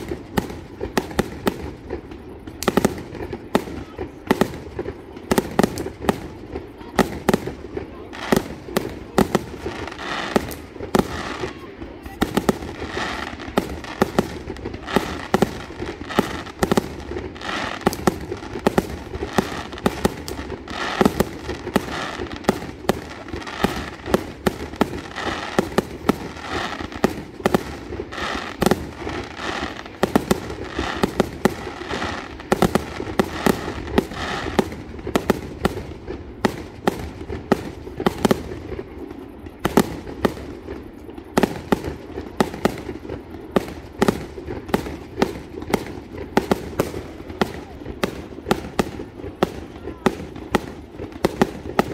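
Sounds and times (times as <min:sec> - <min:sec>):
fireworks crackle and echo: 0:00.0 - 0:51.9.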